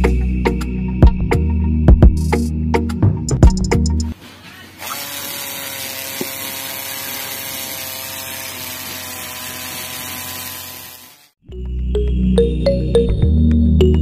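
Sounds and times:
small motor whining: 4.4s - 11.4s.

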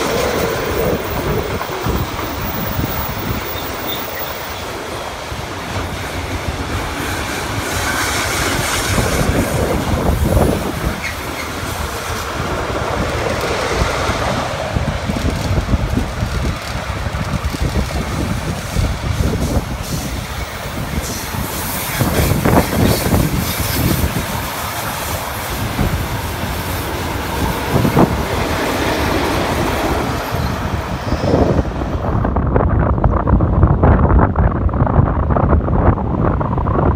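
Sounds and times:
rail clacks: 0.0s - 32.4s
train wheels on rails: 0.0s - 36.9s
wind buffeting microphone: 0.0s - 36.9s.

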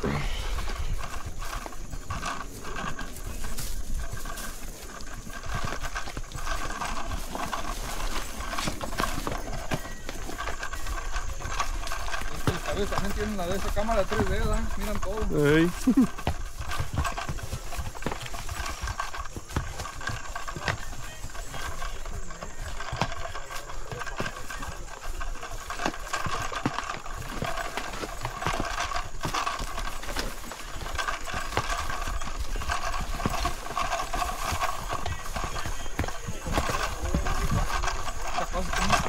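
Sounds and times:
horse hooves on stony trail: 0.0s - 39.0s.

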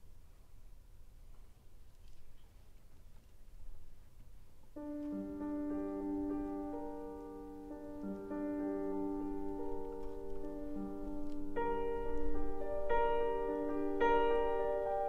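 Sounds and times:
solo piano: 4.6s - 15.0s.

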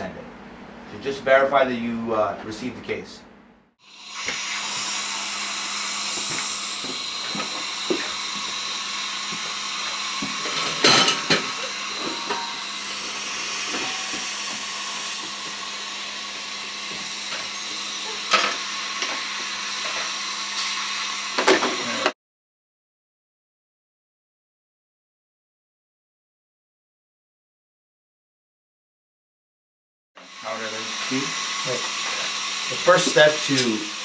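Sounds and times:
dental equipment hissing: 3.8s - 22.1s, 30.2s - 34.0s.

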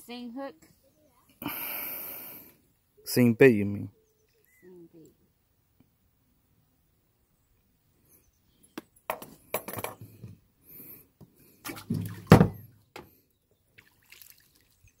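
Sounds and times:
hatch lid thumping shut: 12.0s - 12.6s.

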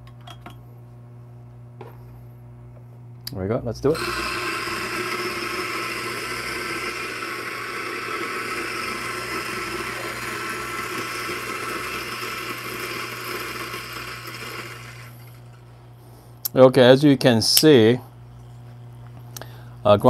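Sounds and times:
coffee grinder running: 3.9s - 15.6s.

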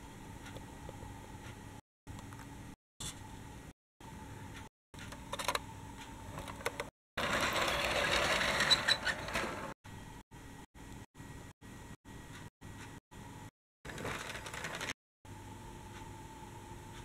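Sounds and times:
toy tram rattling on track: 7.2s - 9.7s, 13.9s - 15.0s
faint steady hum: 15.3s - 17.0s.

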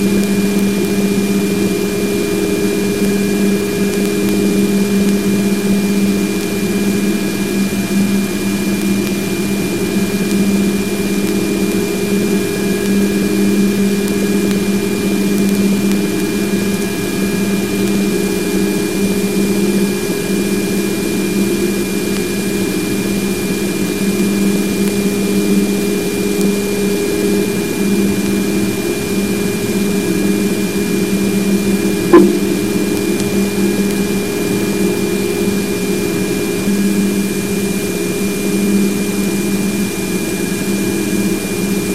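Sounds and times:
strong low hum: 31.8s - 33.3s
constant high tone: 32.0s - 32.8s
fainter lower tone: 32.0s - 32.8s
sharp click: 32.1s - 32.6s.

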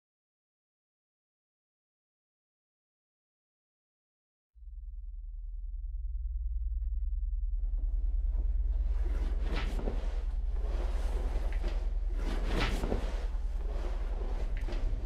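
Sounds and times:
low drone: 4.6s - 15.0s.

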